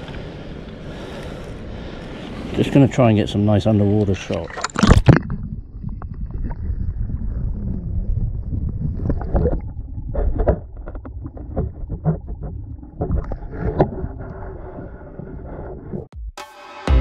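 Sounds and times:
underwater rumble of moving water: 0.0s - 16.1s.

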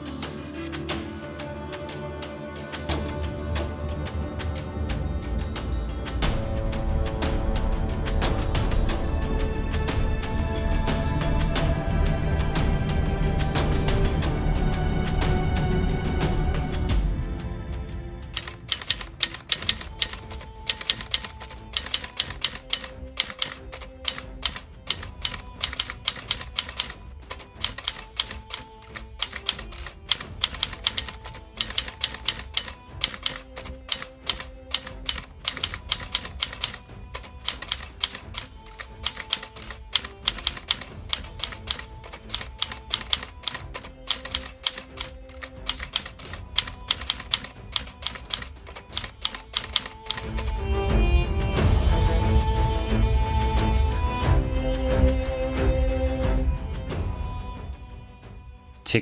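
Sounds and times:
background music with held notes: 0.0s - 59.0s
typewriter keys clacking: 18.3s - 50.6s.

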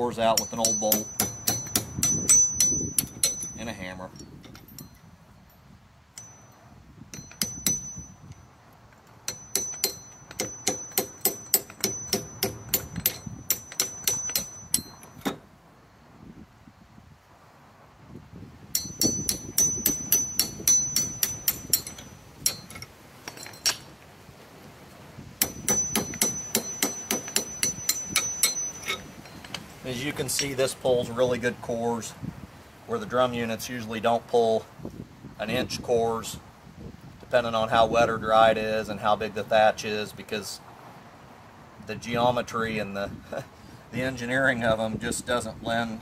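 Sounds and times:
hammer tapping metal: 0.3s - 3.8s, 6.2s - 8.4s, 9.2s - 15.4s, 18.7s - 23.8s, 25.4s - 29.6s.

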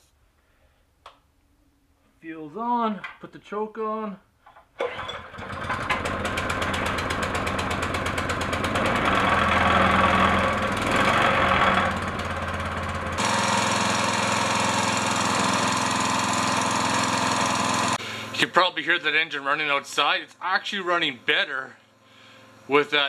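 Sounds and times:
small engine running: 4.8s - 18.4s.

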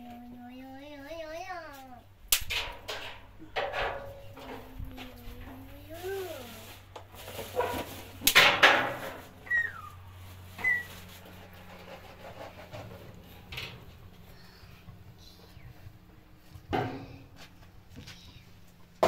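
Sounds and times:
firewood scraping and clattering: 6.5s - 9.4s.

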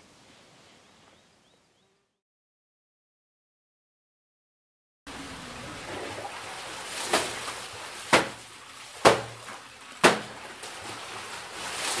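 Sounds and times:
wet laundry slapping on stone: 6.4s - 12.0s.

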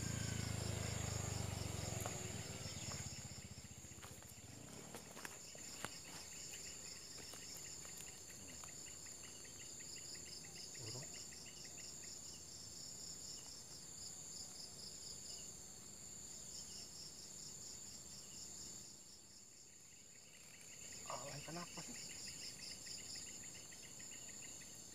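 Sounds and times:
insect pulsing trill: 0.0s - 15.6s, 16.2s - 24.9s
insect high continuous trill: 0.0s - 24.9s.

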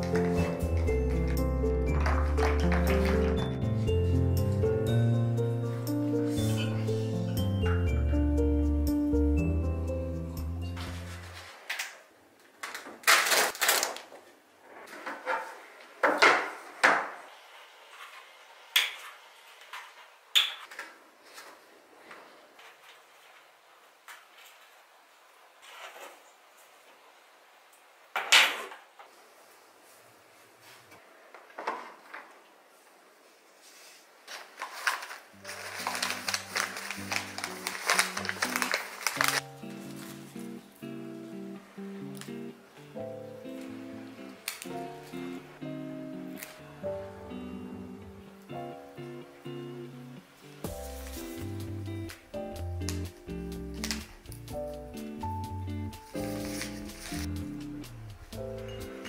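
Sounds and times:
paper wrapping crinkling: 0.0s - 4.6s, 10.8s - 12.0s, 12.6s - 14.4s, 33.7s - 40.7s, 52.8s - 54.4s, 56.0s - 57.5s
music: 0.0s - 11.5s, 35.4s - 59.0s
paper rustling and sliding: 10.8s - 11.9s, 33.5s - 40.6s, 50.7s - 51.6s, 56.1s - 57.4s.

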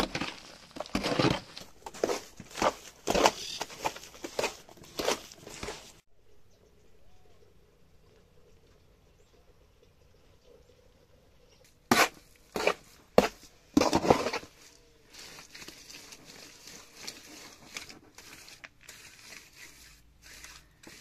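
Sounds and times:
trowel scraping through plaster: 0.0s - 6.0s, 11.9s - 21.0s.

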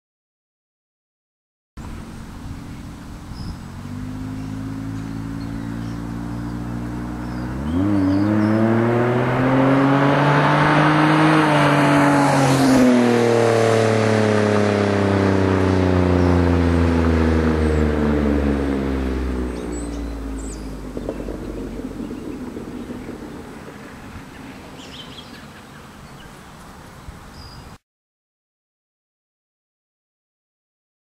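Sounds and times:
car engine accelerating hard: 1.8s - 26.2s.

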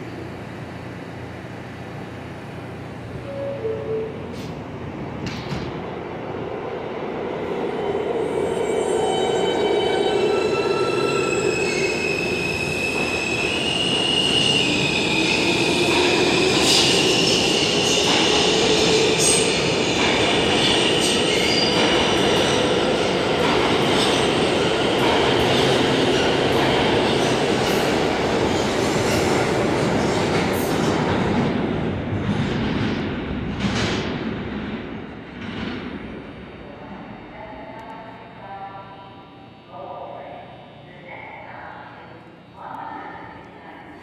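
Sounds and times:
subway train running: 0.0s - 44.0s
wheels squealing on rails: 8.2s - 19.7s, 20.6s - 21.9s.

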